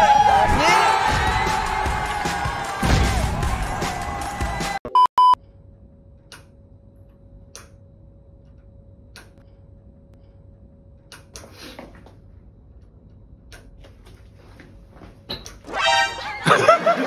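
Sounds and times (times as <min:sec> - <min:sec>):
quiet steady hum: 0:05.4 - 0:15.3.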